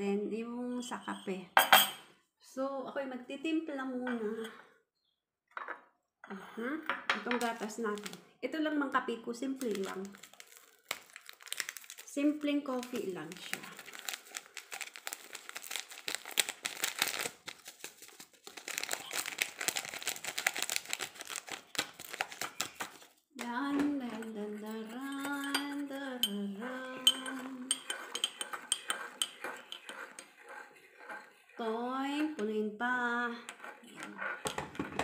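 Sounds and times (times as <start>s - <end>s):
spoon clinking in ceramic mug: 1.6s - 2.0s, 24.8s - 30.2s
packet crinkling: 7.5s - 8.2s, 9.6s - 23.2s
woman humming: 23.6s - 27.7s.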